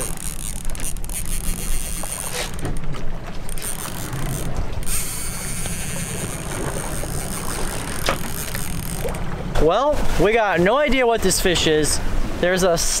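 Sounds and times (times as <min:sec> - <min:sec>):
fishing reel clicking: 0:00.0 - 0:02.9, 0:03.5 - 0:09.2
outboard engines idling: 0:00.0 - 0:12.0.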